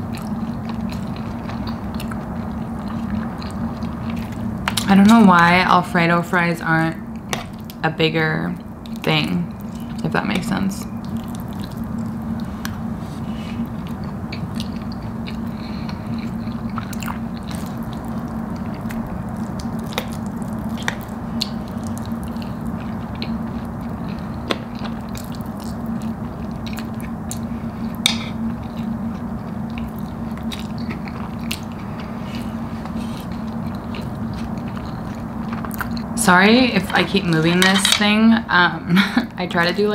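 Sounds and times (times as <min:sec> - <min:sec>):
person chewing food: 0:00.0 - 0:05.2, 0:11.0 - 0:36.1
steady low hum: 0:00.0 - 0:39.9.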